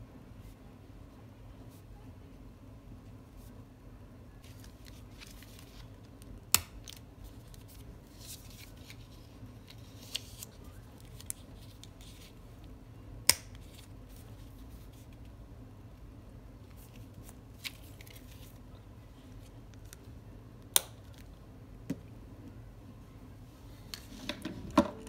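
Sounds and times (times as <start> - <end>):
paper and plastic rustling: 4.4 - 6.2.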